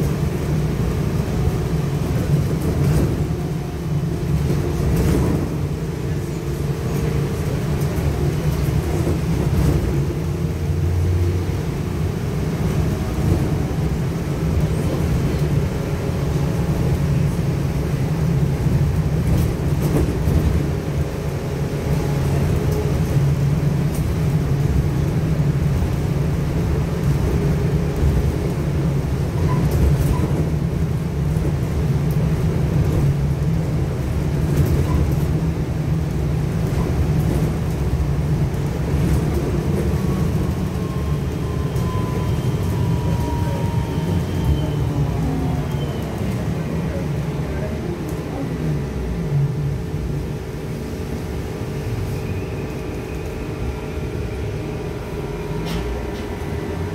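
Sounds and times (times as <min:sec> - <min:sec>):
trolleybus low rumble: 0:00.0 - 0:56.9.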